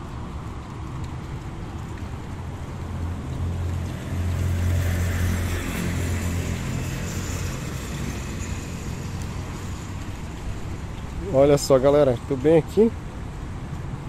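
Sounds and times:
passing road traffic hum: 0:00.0 - 0:14.0.

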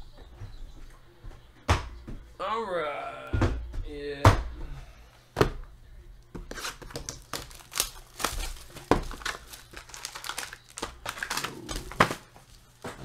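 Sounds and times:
wrapper and cardboard crinkling: 0:06.5 - 0:13.0.

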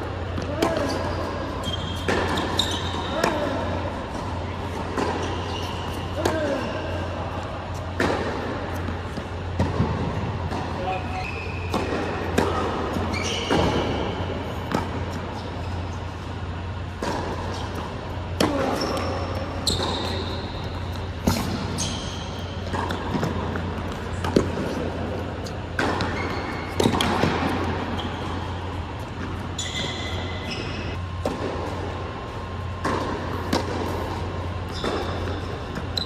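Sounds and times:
court shoes squeaking: 0:00.0 - 0:36.0
steady low hum: 0:00.0 - 0:36.0
racket striking ball: 0:00.3 - 0:01.1, 0:02.0 - 0:06.6, 0:07.8 - 0:11.0, 0:11.6 - 0:15.2, 0:16.8 - 0:27.9, 0:31.1 - 0:31.9, 0:32.5 - 0:36.0
tennis ball bouncing: 0:00.3 - 0:06.6, 0:07.6 - 0:15.3, 0:16.8 - 0:29.5, 0:30.1 - 0:36.0.

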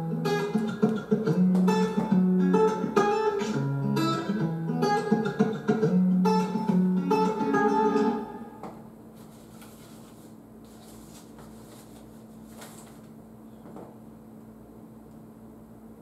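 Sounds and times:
acoustic guitar music: 0:00.0 - 0:08.9
faint steady hum and hiss: 0:00.0 - 0:16.0.

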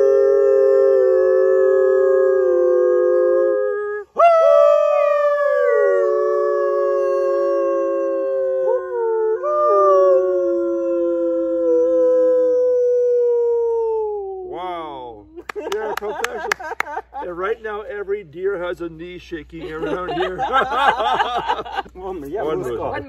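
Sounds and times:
people howling like wolves: 0:00.0 - 0:14.6.

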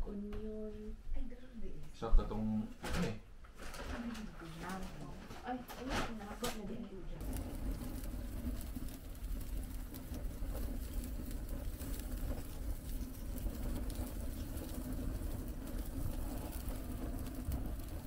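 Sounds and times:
constant hum: 0:03.9 - 0:18.0.

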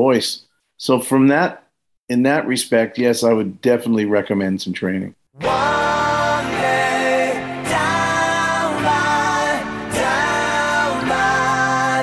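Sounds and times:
song with long held notes: 0:05.4 - 0:12.0.

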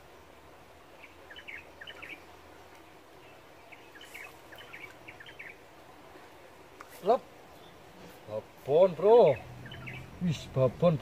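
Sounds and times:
faint outdoor background noise: 0:00.0 - 0:11.0
bird chirping: 0:00.9 - 0:02.6, 0:03.2 - 0:05.6, 0:07.5 - 0:08.2, 0:09.0 - 0:11.0.

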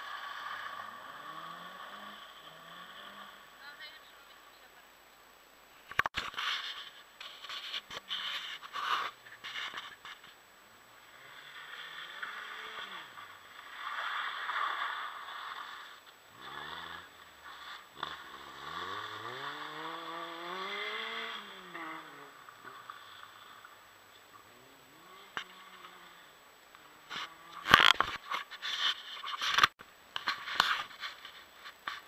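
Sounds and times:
car engine revving: 0:00.0 - 0:03.6, 0:11.0 - 0:27.9.

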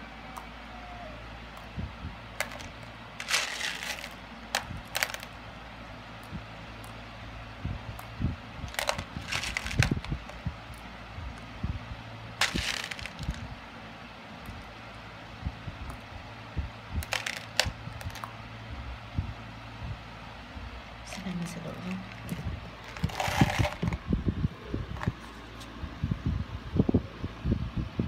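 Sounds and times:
beads clicking and rattling: 0:02.4 - 0:05.4, 0:08.7 - 0:10.8, 0:12.4 - 0:13.4, 0:22.1 - 0:24.0.

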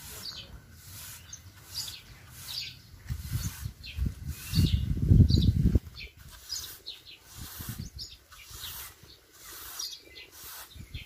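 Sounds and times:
birds chirping: 0:00.0 - 0:11.0.

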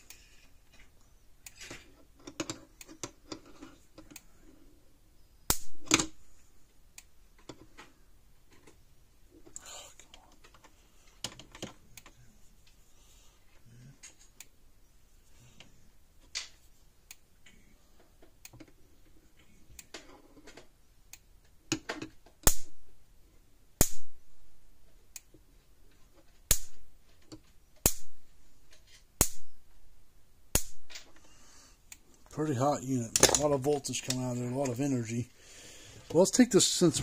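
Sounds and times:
electric spark snaps: 0:05.5 - 0:06.0, 0:22.4 - 0:22.8, 0:23.8 - 0:24.1, 0:26.5 - 0:26.8, 0:27.8 - 0:28.2, 0:29.2 - 0:29.5, 0:30.5 - 0:31.0.

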